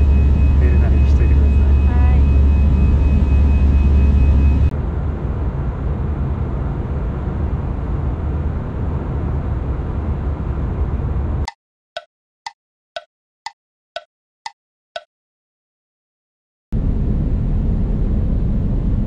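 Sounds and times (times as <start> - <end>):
jet engine cabin rumble: 0.0 - 11.4, 16.8 - 19.0.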